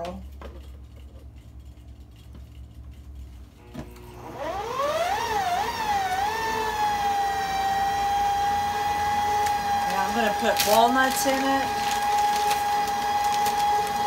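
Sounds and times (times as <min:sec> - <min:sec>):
stand mixer motor whine: 0:03.6 - 0:14.0.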